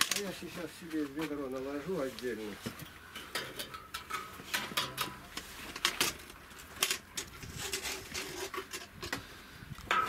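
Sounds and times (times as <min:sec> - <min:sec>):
trowel scraping against bucket: 0:06.9 - 0:09.2.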